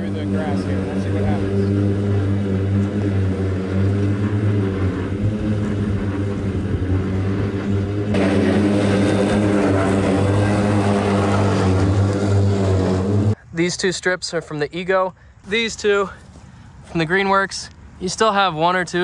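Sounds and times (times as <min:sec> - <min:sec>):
electric mower hum: 0:00.0 - 0:13.4.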